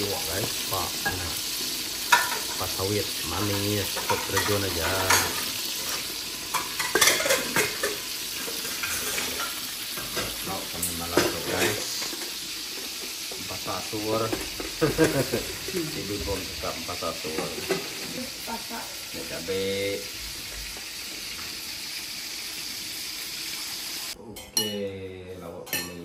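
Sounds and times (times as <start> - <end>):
food sizzling in hot oil: 0.0 - 24.7
utensil scraping a pan: 3.4 - 13.4.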